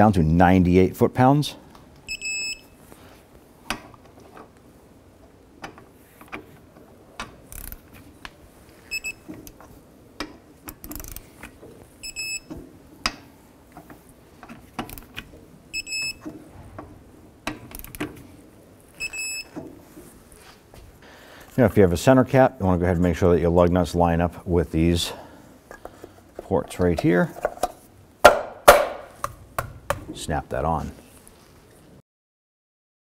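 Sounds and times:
ratchet clicks: 10.7 - 11.3.

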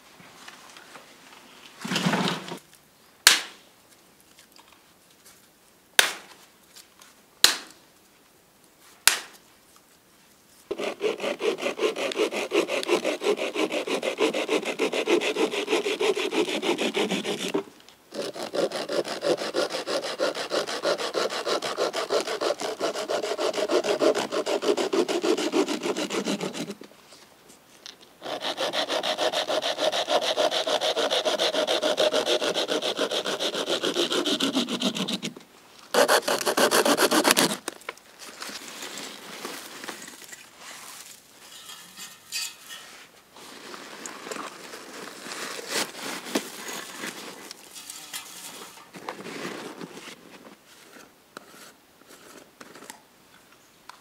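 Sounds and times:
sharp cracks: 3.3 - 3.6
hand saw cutting branch: 10.7 - 26.8, 28.2 - 37.7
sticks clattering on ground: 41.1 - 43.1, 46.4 - 49.4.

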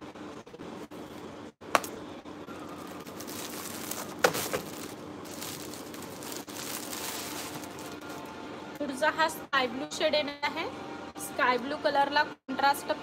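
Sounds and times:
packaging crinkling rustle: 2.6 - 8.3.

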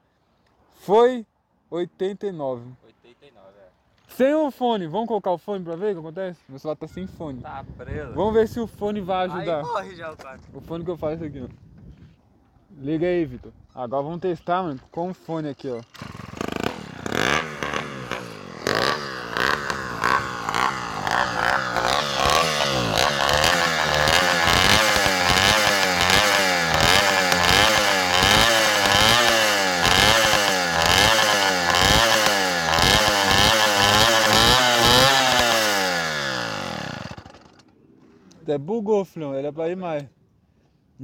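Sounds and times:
small engine revving: 15.8 - 37.7.

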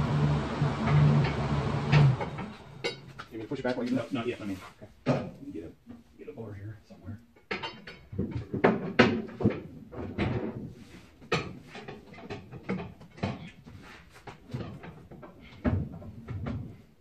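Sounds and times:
metal clunks and knocks: 0.8 - 3.9, 7.4 - 16.9.

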